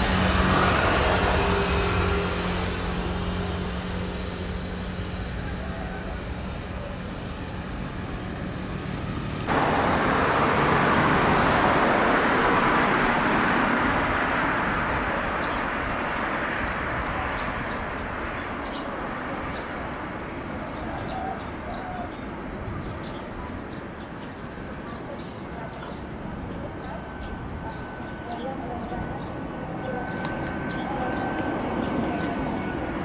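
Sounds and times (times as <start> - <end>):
loud rushing jet noise: 0.0 - 5.6, 8.0 - 20.5
jet engine rumble: 0.0 - 33.0.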